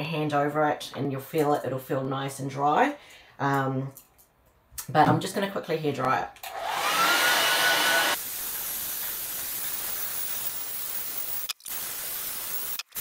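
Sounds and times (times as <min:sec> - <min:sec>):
hair dryer blowing: 0:06.4 - 0:11.4.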